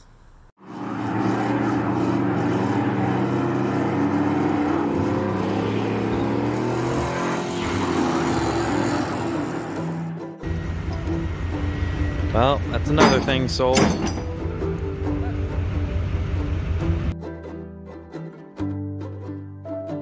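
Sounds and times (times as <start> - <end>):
car engine revving: 0.6 - 13.6.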